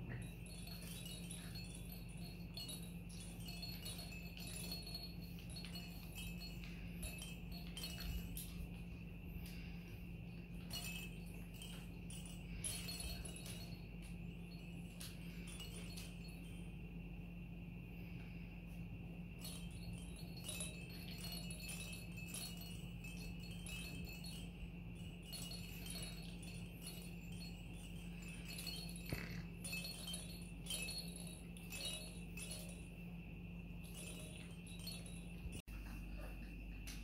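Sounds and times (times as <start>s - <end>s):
faint steady hum: 0.0s - 37.0s
toy bells and rattles jingling: 0.0s - 37.0s.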